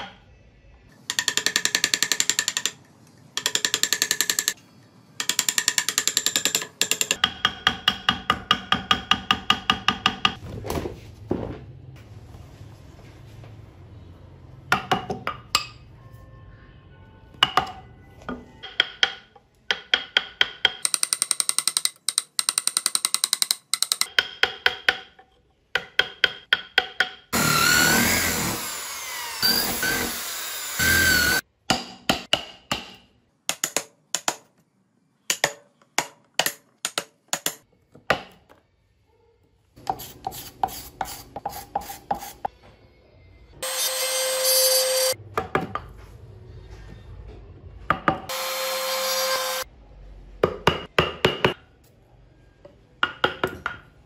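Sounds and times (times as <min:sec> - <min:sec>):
chisel cutting and tapping wood: 0:35.3 - 0:38.2.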